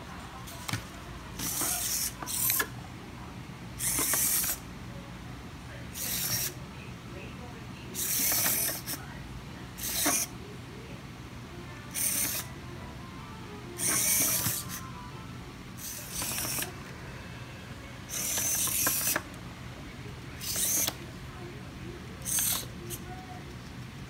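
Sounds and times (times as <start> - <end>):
servo motors whirring: 1.4 - 2.7, 3.8 - 4.6, 6.0 - 6.6, 8.0 - 9.0, 9.8 - 10.3, 11.9 - 12.5, 13.8 - 14.9, 15.8 - 16.8, 18.0 - 19.3, 20.4 - 21.0, 22.2 - 23.1.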